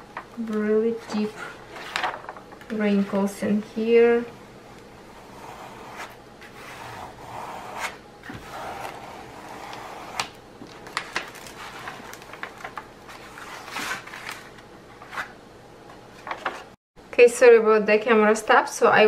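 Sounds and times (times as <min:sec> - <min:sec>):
paper rustling and crinkling: 0:10.6 - 0:15.3, 0:16.2 - 0:16.8.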